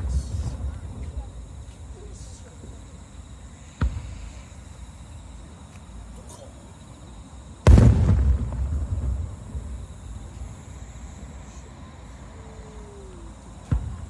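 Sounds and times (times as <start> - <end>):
firework shells booming: 3.8 - 4.7, 7.6 - 10.6, 13.6 - 14.0.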